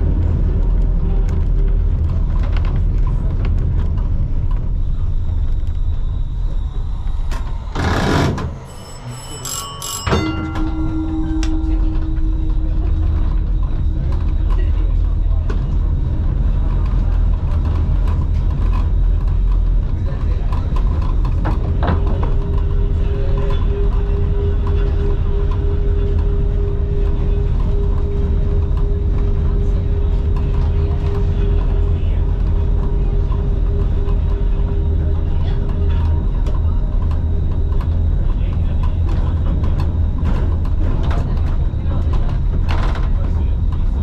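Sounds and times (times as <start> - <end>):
tram rumbling: 0.0 - 44.0
brief ringing: 8.6 - 13.5.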